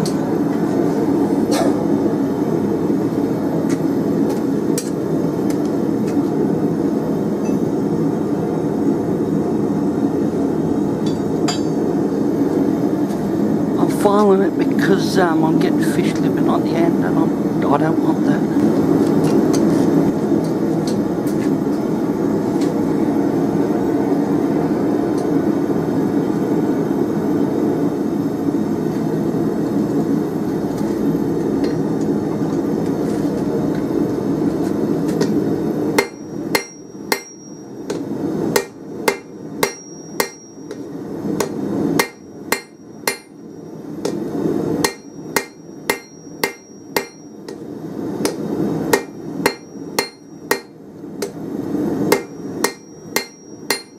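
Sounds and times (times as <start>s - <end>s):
hammer striking steel on anvil: 11.0s - 12.0s, 36.0s - 43.4s, 44.0s - 44.2s, 44.8s - 47.6s, 48.2s - 51.4s, 52.1s - 53.9s.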